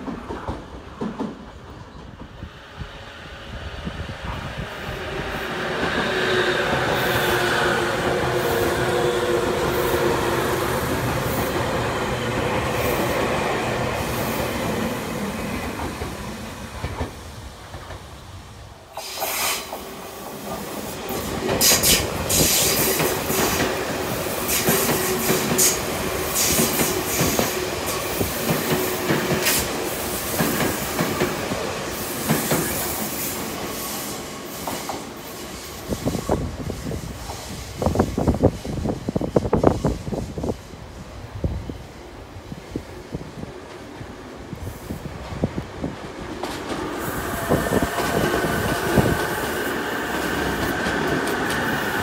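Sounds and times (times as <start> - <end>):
electric train whining past: 0.0 - 52.0.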